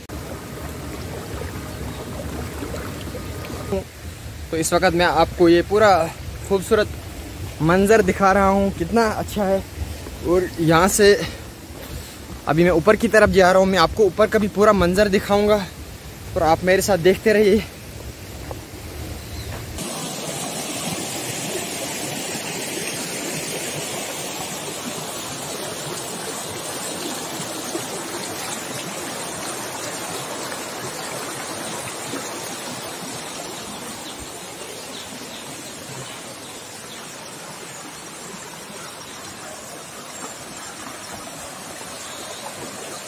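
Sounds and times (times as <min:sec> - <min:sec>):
stream splashing over stones: 0:00.0 - 0:18.8, 0:19.8 - 0:43.0.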